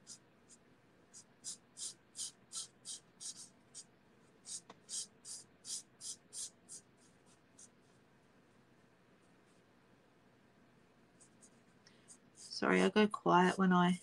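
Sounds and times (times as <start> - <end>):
marker tip rubbing on cardstock: 0.0 - 7.8.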